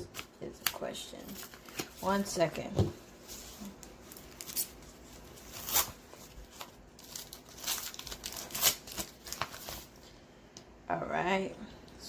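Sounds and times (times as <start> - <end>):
packaging tearing and rustling: 4.1 - 9.9.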